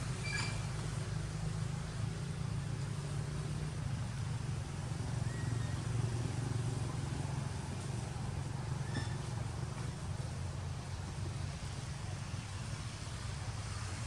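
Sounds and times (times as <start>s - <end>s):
low engine rumble: 0.0s - 14.0s
short high squeak: 0.2s - 0.8s, 8.8s - 9.3s.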